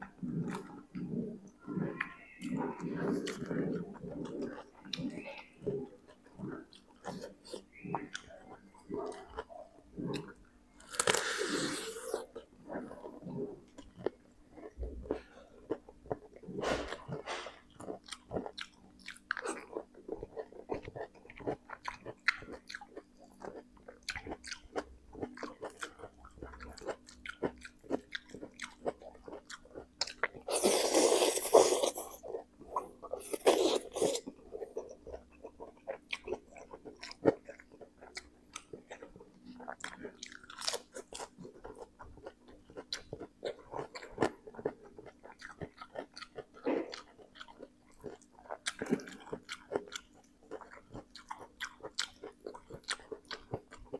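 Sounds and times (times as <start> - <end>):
wet chewing and lip smacks: 17.8 - 53.9
loud noodle slurps: 30.5 - 32.2.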